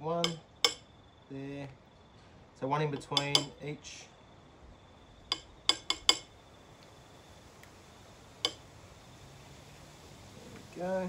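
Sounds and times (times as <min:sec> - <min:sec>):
metal teaspoon clinking on pot: 0:03.0 - 0:03.5, 0:05.3 - 0:06.3.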